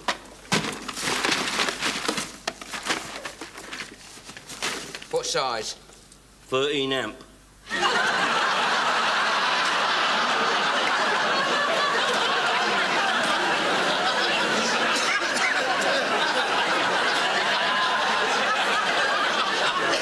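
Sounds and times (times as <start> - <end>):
audience laughing: 7.7 - 20.0.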